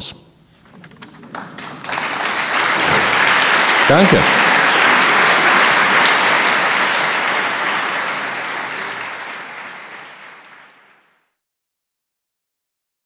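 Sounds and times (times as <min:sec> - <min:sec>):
audience applauding: 0:01.0 - 0:11.3.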